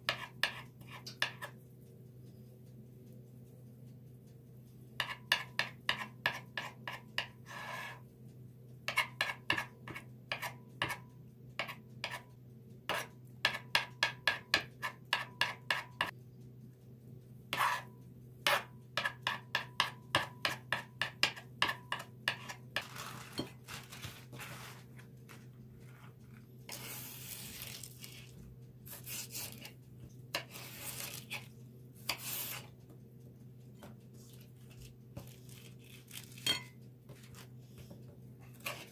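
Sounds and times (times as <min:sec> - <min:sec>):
steady low hum: 0:06.7 - 0:13.7
knife tapping on cutting board: 0:13.4 - 0:16.1
rustling and scraping: 0:22.4 - 0:33.0, 0:33.8 - 0:38.9.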